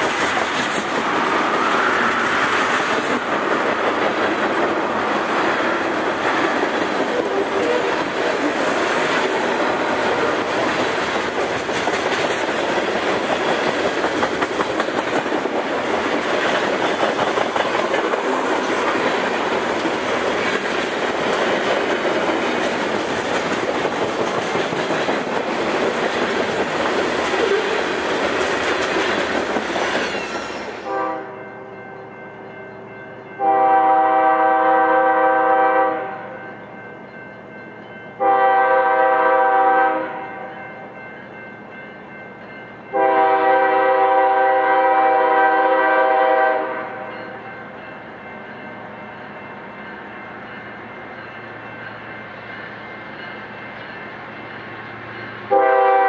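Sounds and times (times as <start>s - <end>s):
train wheels clacking on rails: 0.0s - 31.1s
locomotive air horn blasts: 30.8s - 31.5s, 33.4s - 36.4s, 38.2s - 40.5s, 42.9s - 47.1s, 55.5s - 56.0s.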